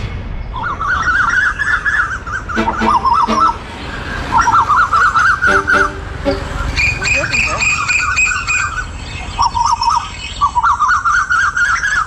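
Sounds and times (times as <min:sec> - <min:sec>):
steady low rumble: 0:00.0 - 0:07.4.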